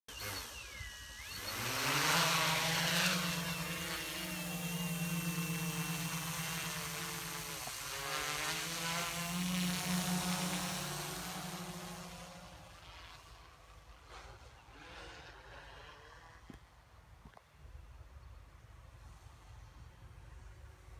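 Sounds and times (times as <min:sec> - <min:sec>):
drone rotors humming: 0:00.1 - 0:15.7.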